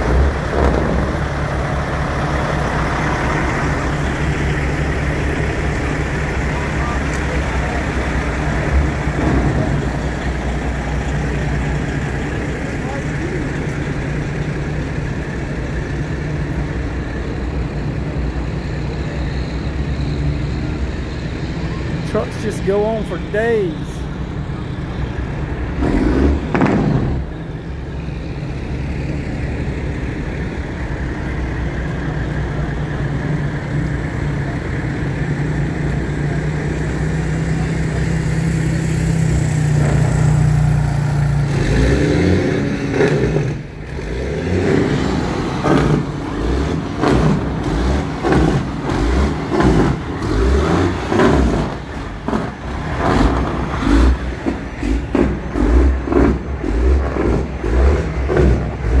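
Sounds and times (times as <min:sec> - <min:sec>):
large vehicle engine running: 0:00.0 - 0:59.0
choppy low rumbling: 0:51.8 - 0:59.0.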